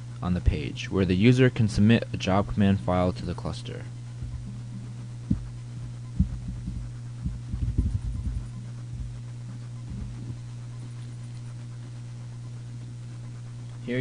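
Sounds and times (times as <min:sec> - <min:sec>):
electrical hum: 0:00.0 - 0:14.0
keyboard typing thumps: 0:04.2 - 0:05.5, 0:06.2 - 0:09.2.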